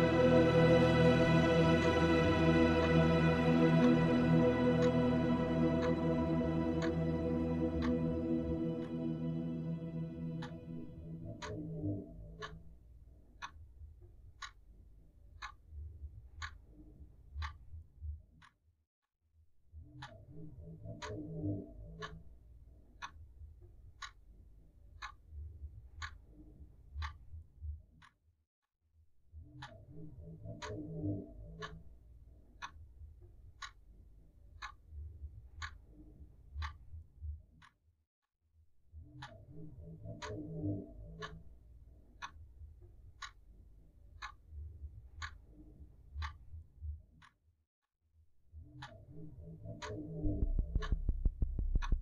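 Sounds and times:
background music: 0.0s - 12.1s
low rumble: 0.0s - 12.4s, 50.2s - 52.0s
clock ticking: 0.0s - 12.7s, 20.0s - 22.2s, 29.5s - 31.9s, 35.5s - 35.8s, 39.1s - 41.6s, 42.2s - 45.4s, 48.8s - 52.0s.

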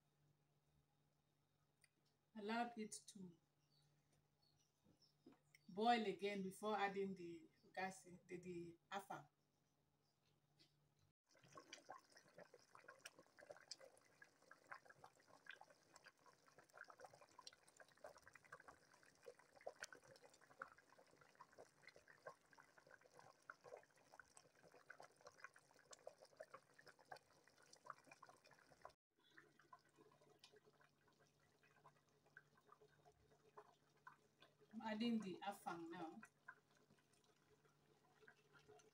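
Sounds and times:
soup bubbling with small pops: 10.7s - 38.9s.

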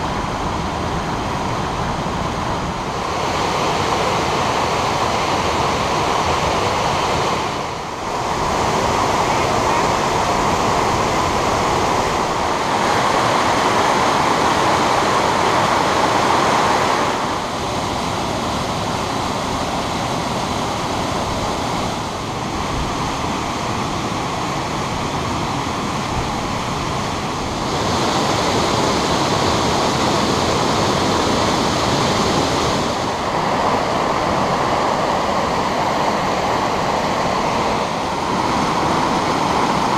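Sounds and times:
waterfall rushing over rock: 0.0s - 39.9s.

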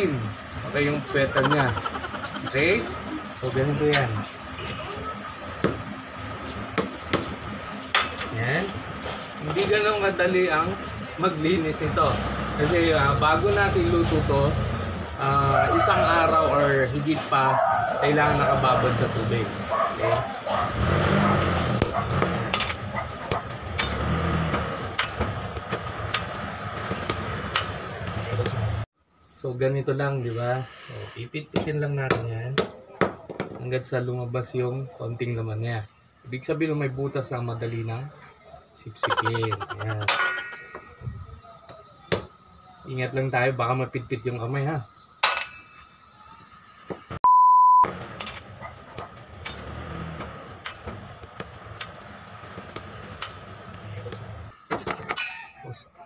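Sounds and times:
engine-like hum with high tone: 0.0s - 31.3s, 36.0s - 46.8s
high censor beep: 47.2s - 47.9s.

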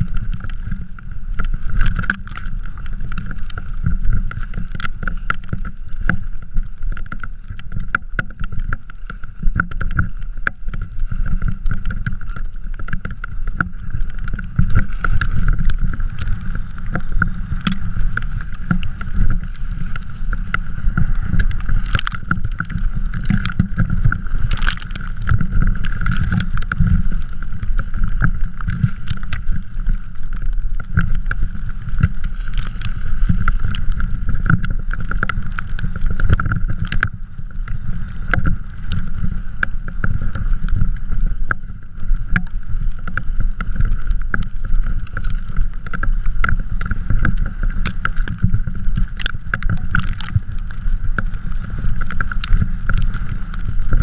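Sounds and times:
trike rumbling over snow: 0.0s - 54.0s
small knocks and clicks: 0.3s - 6.3s, 7.0s - 37.2s, 42.4s - 51.3s
wind buffeting microphone: 13.0s - 29.5s.

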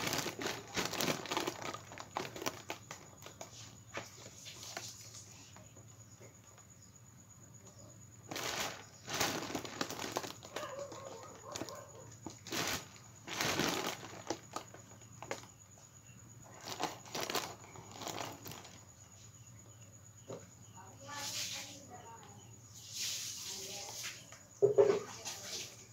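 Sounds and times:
foil balloon crinkling: 0.0s - 4.9s, 8.3s - 15.5s, 16.5s - 18.8s.

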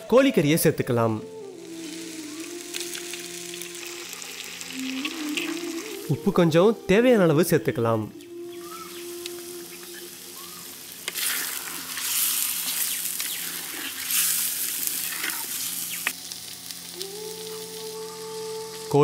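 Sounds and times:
chicken sizzling in a clay pot: 1.4s - 6.5s, 8.5s - 19.0s
stirring and scraping in a pot: 11.0s - 15.6s.

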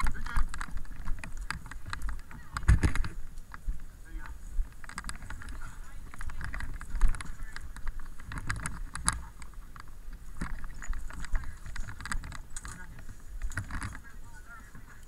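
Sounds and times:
gear clattering and knocking: 0.0s - 3.2s, 4.1s - 15.0s
footsteps: 0.0s - 15.0s.

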